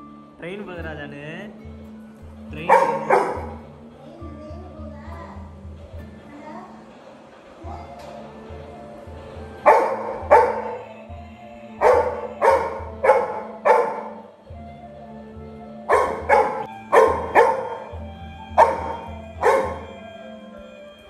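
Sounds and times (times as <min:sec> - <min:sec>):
background music with low beat: 0:00.0 - 0:21.0
puppy barking: 0:02.6 - 0:03.6, 0:09.6 - 0:10.8, 0:11.8 - 0:14.3, 0:15.9 - 0:20.0.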